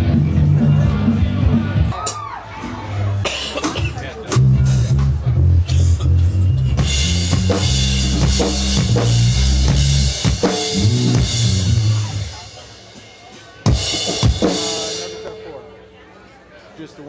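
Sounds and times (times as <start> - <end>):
bass guitar: 0.0 - 12.6
drum kit: 0.0 - 15.8
live rock band playing: 0.0 - 16.3.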